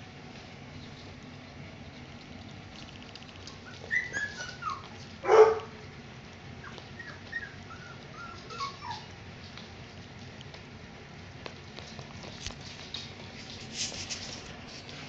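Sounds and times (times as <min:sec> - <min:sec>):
puppies whining and squeaking: 0:03.4 - 0:05.1, 0:06.6 - 0:09.2
puppy yapping: 0:03.6 - 0:05.7, 0:06.6 - 0:09.1.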